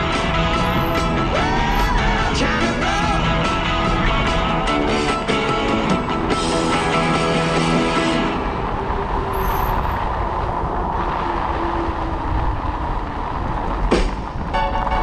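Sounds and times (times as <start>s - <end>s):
rock music: 0.0s - 8.7s
wheels rolling over gravel: 0.0s - 15.0s
wind on microphone: 7.4s - 15.0s.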